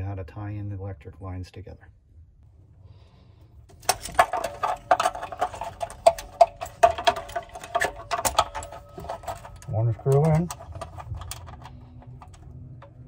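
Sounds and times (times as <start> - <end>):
screwdriver clicking and scraping: 3.8 - 13.0.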